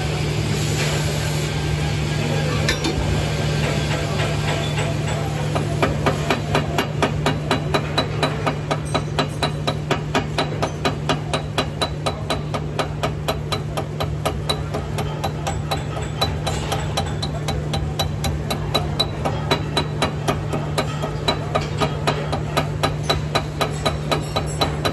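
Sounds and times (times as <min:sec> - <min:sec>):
chipping hammer knocking on metal: 0:04.2 - 0:24.9.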